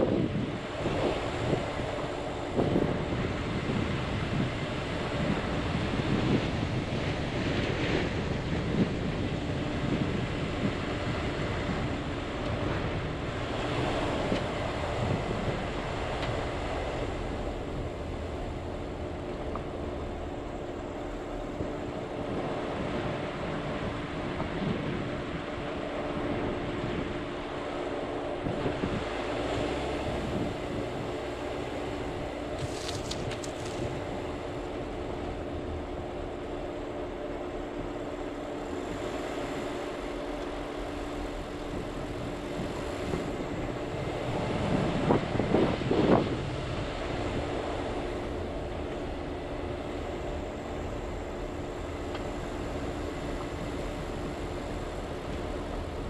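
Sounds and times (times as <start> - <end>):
engine hum: 0.0 - 56.0
tyre rumble on dirt road: 32.5 - 34.4.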